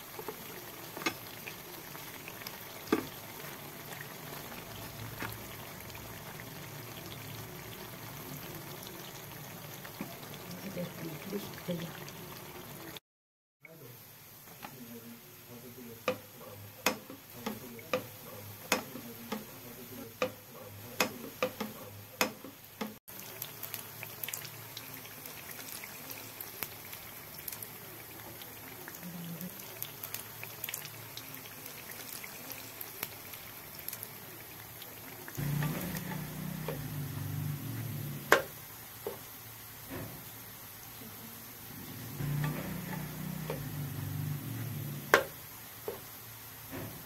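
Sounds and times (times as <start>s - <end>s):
oil popping: 0.0s - 8.2s
deep-frying sizzle: 0.0s - 13.0s, 13.7s - 47.0s.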